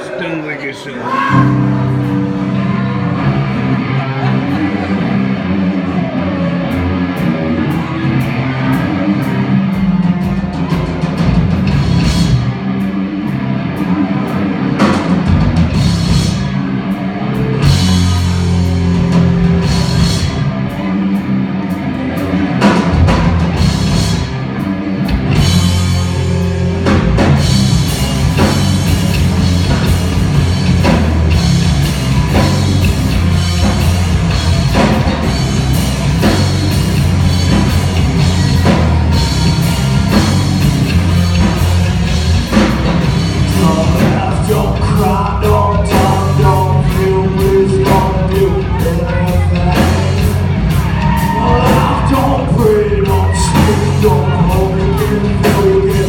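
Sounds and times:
live rock band playing: 1.1 - 56.0.

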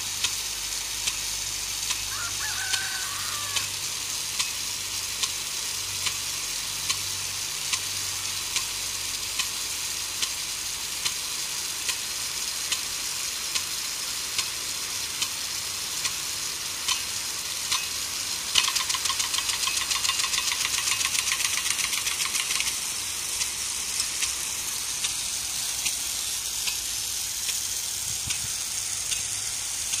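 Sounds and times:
sprinkler spraying water hiss: 0.0 - 30.0
sprinkler arm clicking: 1.0 - 2.1, 4.4 - 4.6, 6.0 - 6.2, 16.8 - 17.1, 17.7 - 30.0
rapid rattle of clicks: 18.5 - 24.4.

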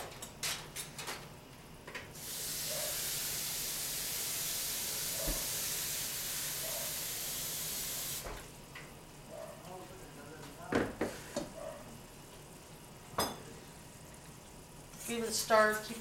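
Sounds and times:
kitchen faucet running: 2.2 - 8.4.

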